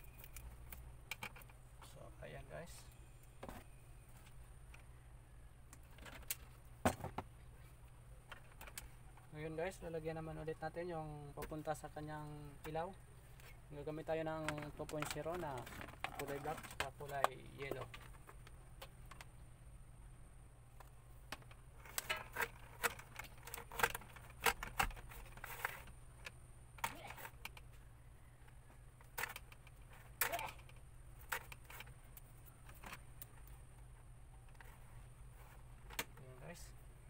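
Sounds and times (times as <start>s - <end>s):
low steady hum: 0.0s - 37.0s
wires scraping through plastic conduit: 14.4s - 18.4s, 21.4s - 27.8s, 29.0s - 33.8s.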